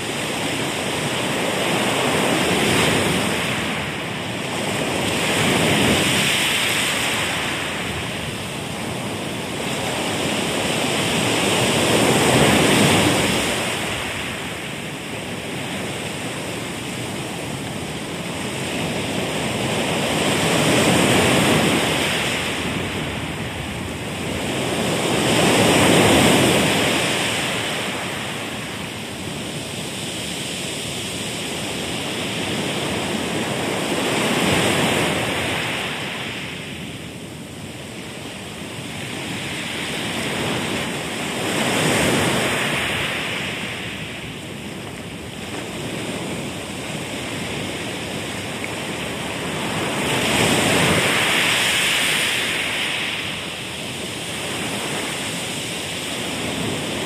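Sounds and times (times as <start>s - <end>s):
ocean waves washing on shore: 0.0s - 57.0s.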